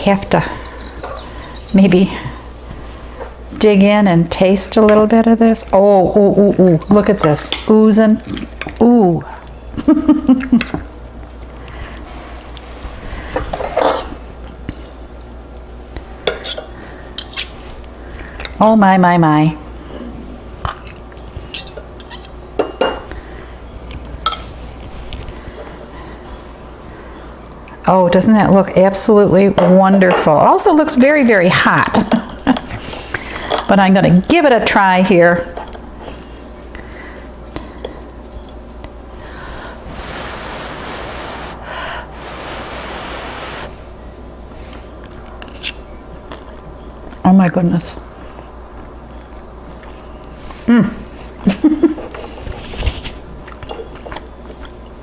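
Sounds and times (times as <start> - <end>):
person blowing on food: 39.2 - 44.0.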